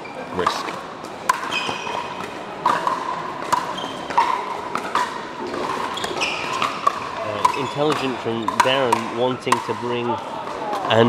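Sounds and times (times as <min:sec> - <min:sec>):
paddles striking plastic ball: 0:02.6 - 0:09.9.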